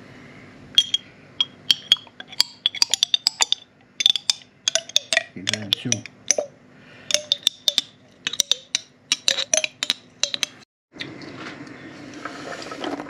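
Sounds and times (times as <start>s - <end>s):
spoon clinking against glass jar: 0.8s - 6.5s, 7.1s - 10.6s.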